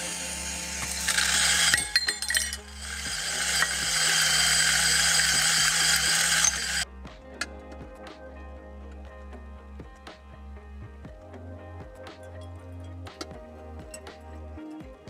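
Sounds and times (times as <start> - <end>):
coffee grinder whirring: 0.0 - 6.9
light glass clinks: 1.1 - 2.7.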